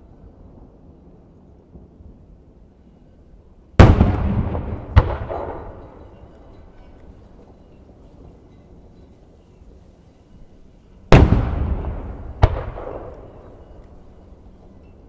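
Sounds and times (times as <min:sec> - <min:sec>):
firework bangs with echo: 0:03.8 - 0:06.2, 0:11.1 - 0:13.8.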